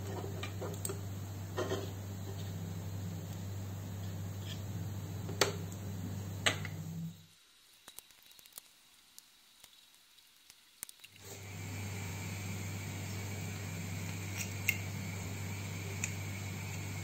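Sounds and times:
steady low hum: 0:00.0 - 0:07.3, 0:11.2 - 0:17.0.

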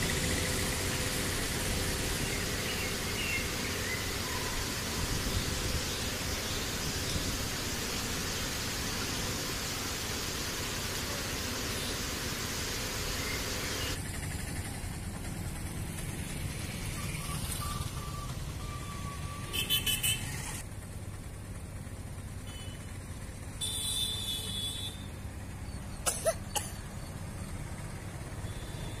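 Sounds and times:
road traffic rumble: 0:00.0 - 0:29.0
car horn toots: 0:19.5 - 0:20.3, 0:23.6 - 0:25.1.

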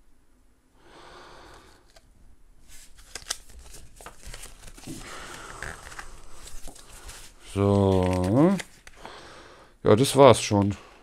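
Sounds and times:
paper rustling and crinkling: 0:02.6 - 0:09.0.

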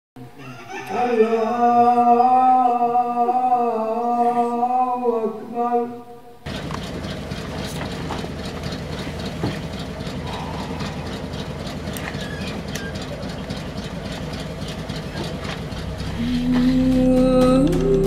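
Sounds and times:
truck engine idling: 0:06.4 - 0:18.0.

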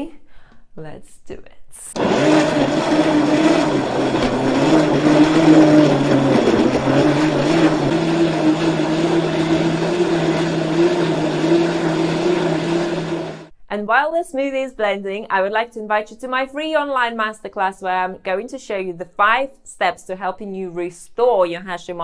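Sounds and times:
blender running: 0:02.0 - 0:13.5.

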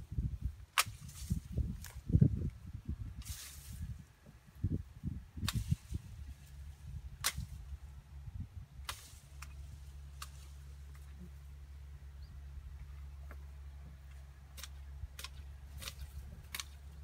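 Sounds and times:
branches snapping: 0:00.7 - 0:02.5, 0:05.4 - 0:07.7, 0:08.8 - 0:11.3, 0:14.1 - 0:17.0.

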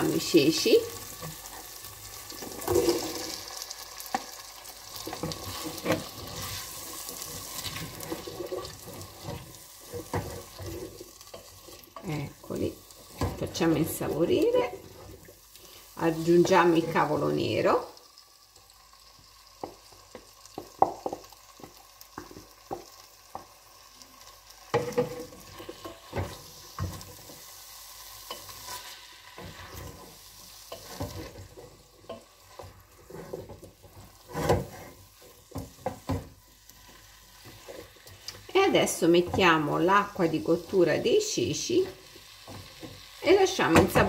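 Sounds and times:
wooden spoon scraping a pot: 0:00.0 - 0:04.3, 0:04.9 - 0:17.3, 0:28.2 - 0:40.6
light sizzle of frying: 0:00.0 - 0:44.0.

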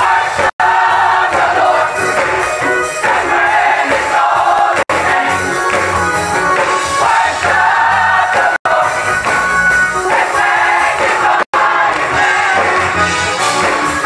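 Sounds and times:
women's choir singing: 0:00.0 - 0:02.2, 0:03.0 - 0:05.5, 0:07.0 - 0:09.1, 0:10.1 - 0:13.1.

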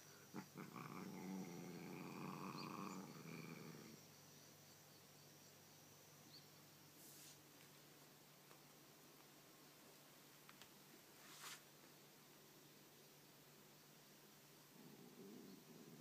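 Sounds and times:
cat growling: 0:00.1 - 0:04.0, 0:14.7 - 0:16.0.

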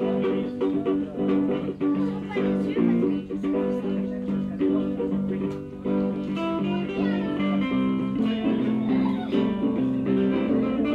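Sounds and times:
guitar plucked and strummed: 0:00.0 - 0:10.9.

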